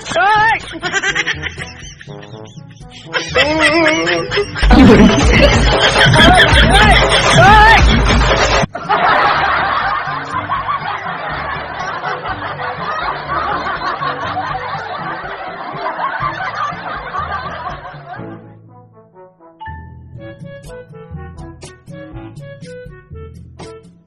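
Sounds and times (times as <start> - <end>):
laugh track: 0.0 - 18.5.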